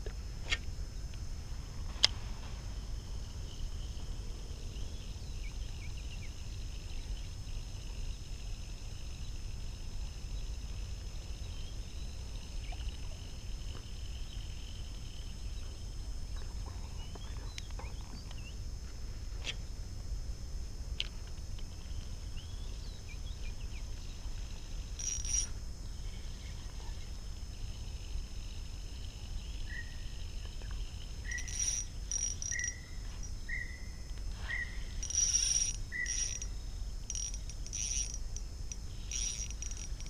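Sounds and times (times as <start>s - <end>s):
wavering chirring: 24.8s - 25.5s, 31.0s - 40.0s
high-pitched hum: 29.8s - 40.0s.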